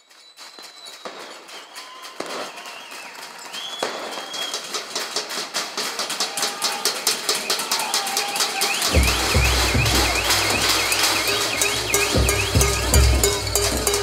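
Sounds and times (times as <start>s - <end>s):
music: 4.7s - 14.0s
fast crackle of hits: 8.8s - 14.0s
sharp hits: 8.8s - 14.0s
noisy swell: 8.9s - 14.0s.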